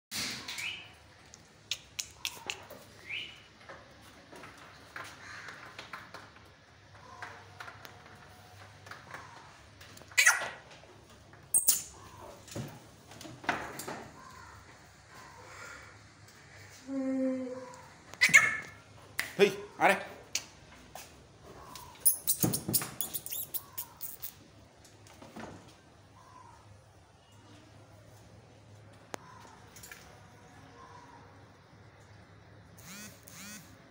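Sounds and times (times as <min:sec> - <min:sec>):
chain clicks and rattles: 0:22.0 - 0:24.4
sharp clicks: 0:32.8 - 0:33.7.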